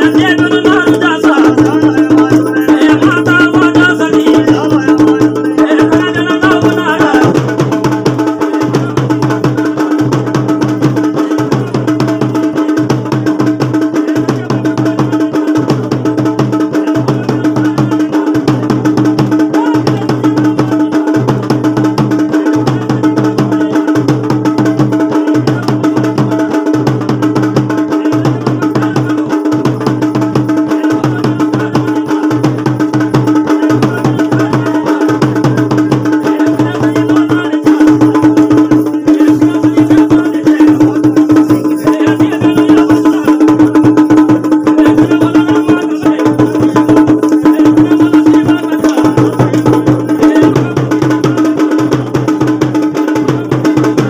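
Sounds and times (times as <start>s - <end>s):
drums playing repeating rhythm: 0.0s - 54.0s.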